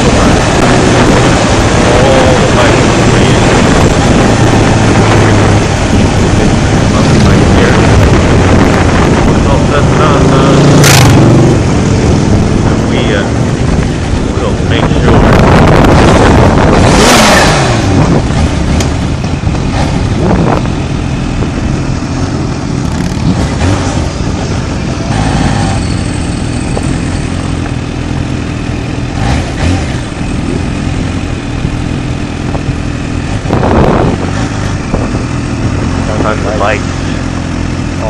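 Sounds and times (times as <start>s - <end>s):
motorcycle engine revving: 0.0s - 38.0s.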